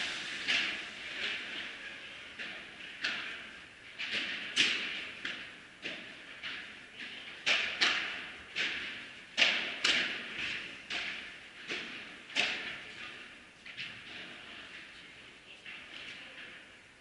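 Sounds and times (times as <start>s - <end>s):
rackets hitting ball echoing: 0.0s - 14.6s.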